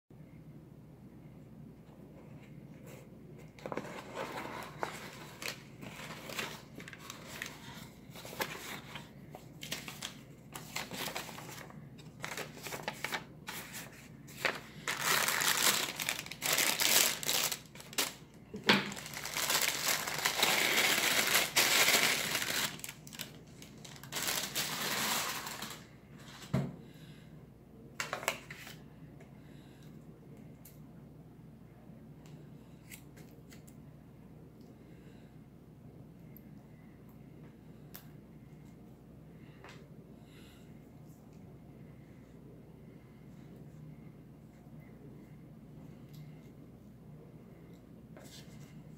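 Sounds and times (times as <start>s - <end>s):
plastic bag crinkling: 9.6s - 13.7s, 14.3s - 25.9s.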